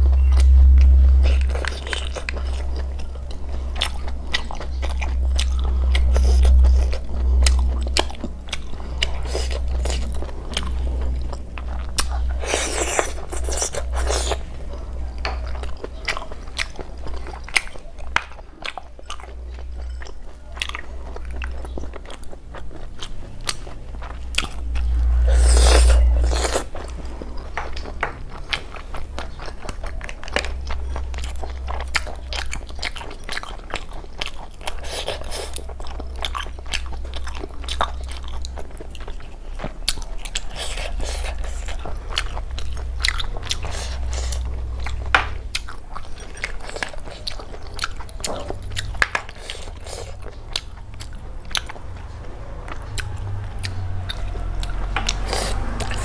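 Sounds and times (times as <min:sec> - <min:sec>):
wet chewing: 0:00.0 - 0:56.0
sucking snail meat from shells: 0:48.1 - 0:51.2.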